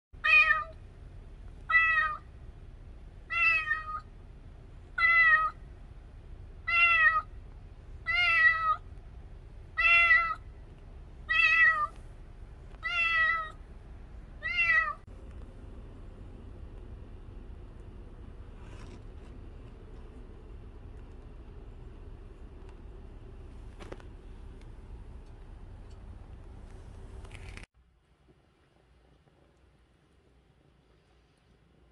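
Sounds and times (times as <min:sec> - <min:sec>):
kitten meowing: 0:01.7 - 0:02.2, 0:03.3 - 0:04.1, 0:05.0 - 0:05.6, 0:06.7 - 0:07.3, 0:08.1 - 0:08.8, 0:09.8 - 0:10.4, 0:11.3 - 0:11.9, 0:12.8 - 0:13.6, 0:14.4 - 0:15.0.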